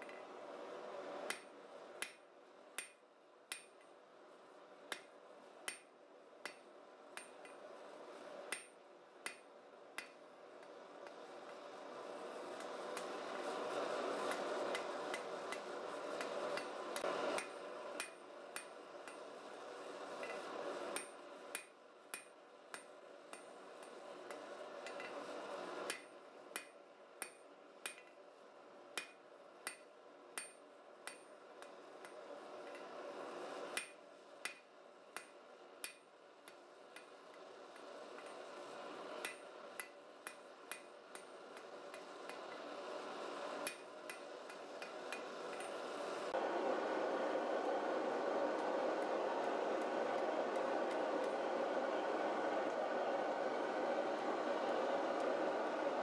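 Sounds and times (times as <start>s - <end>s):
hammer striking metal on anvil: 2.8s - 3.8s, 5.7s - 6.6s, 8.5s - 10.2s, 21.0s - 25.1s, 25.9s - 28.2s, 29.0s - 31.3s, 33.8s - 37.1s.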